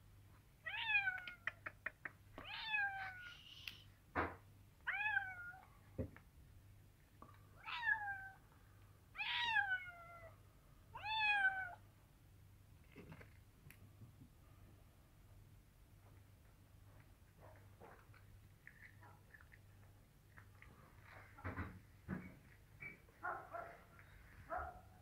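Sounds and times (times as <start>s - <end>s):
cat meowing: 0.6s - 1.5s, 2.4s - 3.4s, 4.9s - 5.6s, 7.6s - 8.4s, 9.2s - 11.8s.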